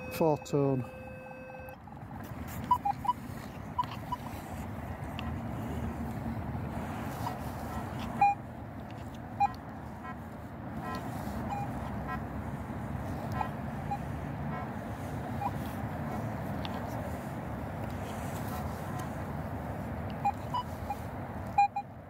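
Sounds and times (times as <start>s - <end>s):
metal detector beeps: 0.0s - 1.8s, 2.5s - 4.6s, 7.0s - 10.2s, 10.8s - 12.2s, 13.3s - 14.1s, 15.0s - 16.2s, 20.2s - 21.9s
low background rumble: 0.0s - 21.6s.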